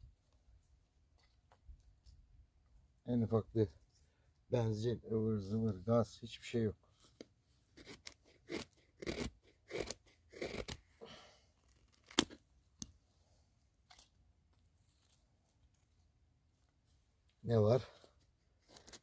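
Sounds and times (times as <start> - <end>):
knife shaving dry wood: 7.7 - 10.9, 18.5 - 19.0.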